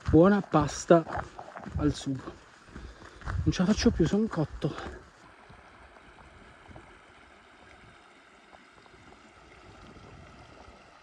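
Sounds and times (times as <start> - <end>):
shallow stream over stones: 0.0 - 11.0.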